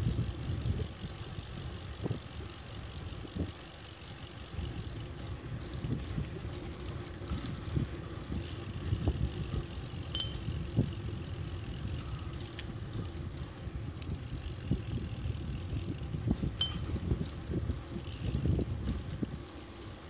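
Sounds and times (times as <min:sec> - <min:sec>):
bicycle rolling over asphalt: 0:00.0 - 0:20.0
wind buffeting microphone: 0:00.0 - 0:20.0.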